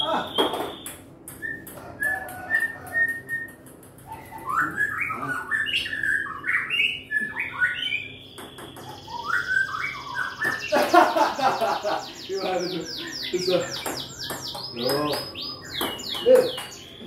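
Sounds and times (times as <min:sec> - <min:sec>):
bird chirping: 0:00.0 - 0:17.0.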